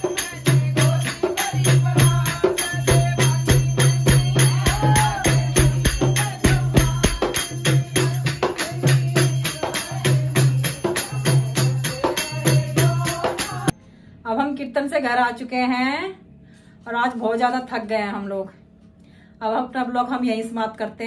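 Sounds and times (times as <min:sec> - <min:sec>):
jingling hand percussion: 0:00.0 - 0:13.8
low drum pulse: 0:01.7 - 0:08.2.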